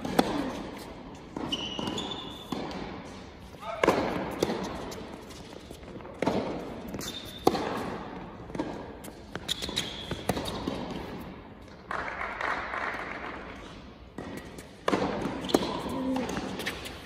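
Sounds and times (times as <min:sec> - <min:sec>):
tennis ball hit by racket: 0:00.0 - 0:03.2, 0:03.8 - 0:05.0, 0:05.8 - 0:11.2, 0:14.2 - 0:16.8
shoes squeaking on court: 0:00.0 - 0:11.2, 0:14.2 - 0:17.0.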